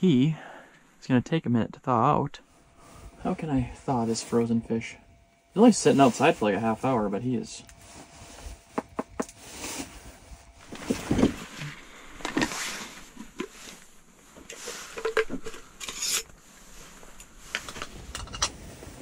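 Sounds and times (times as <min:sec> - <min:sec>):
clothing and sleeping bag rustling: 0:05.6 - 0:07.1, 0:07.7 - 0:19.0.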